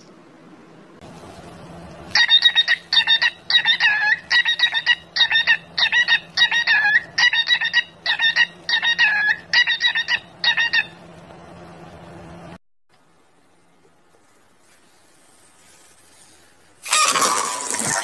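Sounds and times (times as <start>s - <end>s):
cockatiel whistled chirps: 2.2s - 10.9s.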